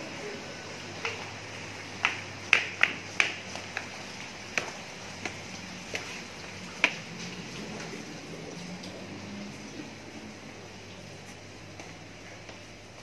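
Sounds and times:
footsteps on tile floor: 1.0s - 8.1s, 11.0s - 13.0s.

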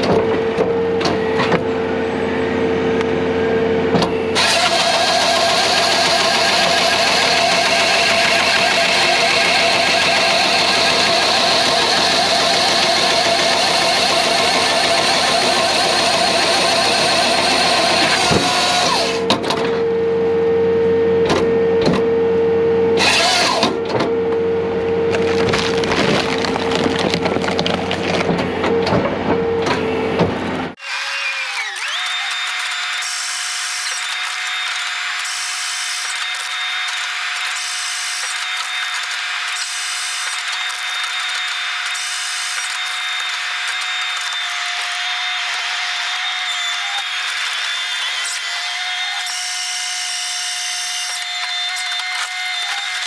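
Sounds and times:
high machine whine: 0.4s - 25.7s
chainsaw cutting log: 4.3s - 19.4s, 23.0s - 23.8s, 25.1s - 28.4s, 30.8s - 53.0s.

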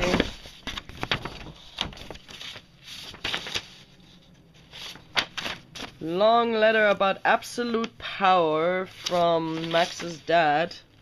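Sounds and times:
paper rustling and crinkling: 0.0s - 6.2s, 8.8s - 10.4s.

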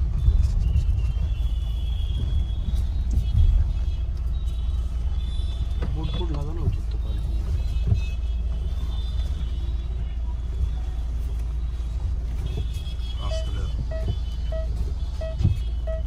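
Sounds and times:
car cabin low rumble: 0.0s - 16.0s
parking sensor beeps: 13.2s - 16.0s.

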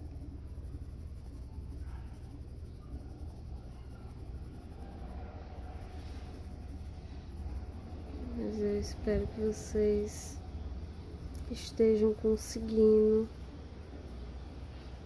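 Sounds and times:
low hum: 0.0s - 15.0s
pencil scratching on paper: 0.0s - 15.0s.

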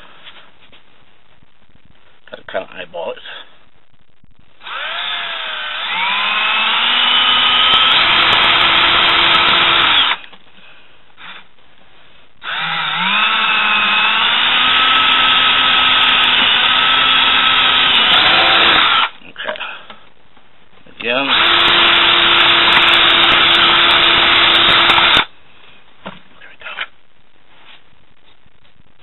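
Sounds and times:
cordless drill boring plastic: 4.6s - 10.3s, 12.4s - 19.1s, 21.3s - 25.3s.

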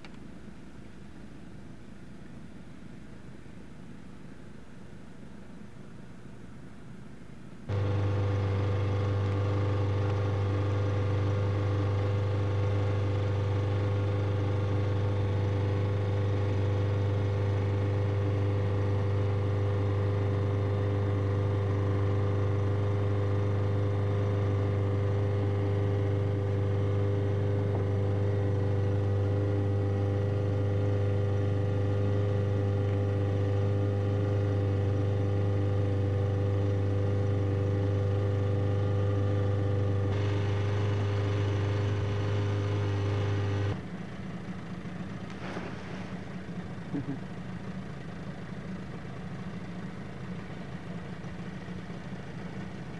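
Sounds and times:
boat engine droning: 7.7s - 19.5s, 40.1s - 43.8s.

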